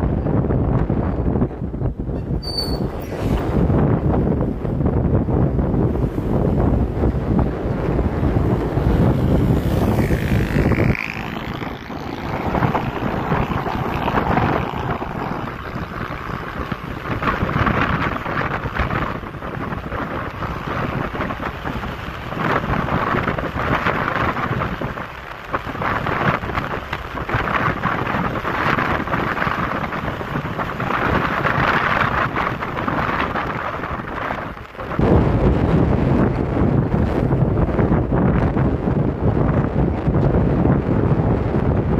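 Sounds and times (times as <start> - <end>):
motorcycle engine rumble: 0.0 - 41.9
wind rushing over microphone: 0.0 - 41.9.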